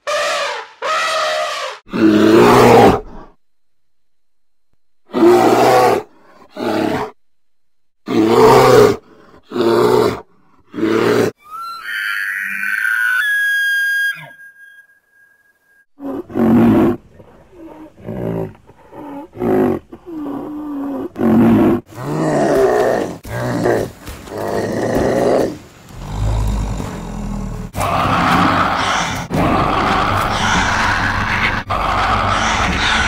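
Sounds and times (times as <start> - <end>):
deep animal calls: 26.0 - 33.0.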